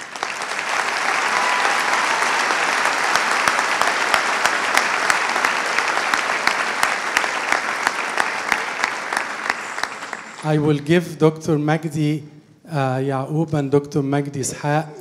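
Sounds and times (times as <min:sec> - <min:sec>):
audience applauding: 0:00.0 - 0:10.6.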